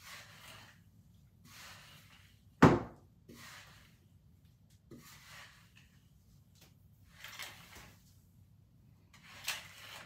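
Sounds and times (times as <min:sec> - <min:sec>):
hair being brushed: 0:00.0 - 0:02.6, 0:03.3 - 0:04.2, 0:04.8 - 0:08.2.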